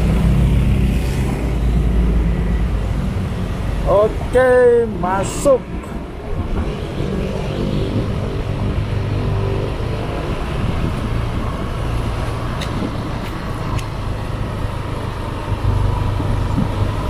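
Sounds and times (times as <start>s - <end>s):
road and wind noise: 0.0s - 17.0s
vehicle engine running: 7.5s - 17.0s.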